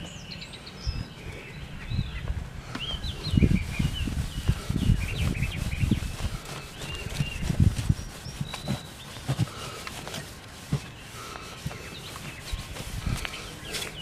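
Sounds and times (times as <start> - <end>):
birds chirping: 0.0 - 14.0
cloth rubbing on guitar: 3.3 - 14.0.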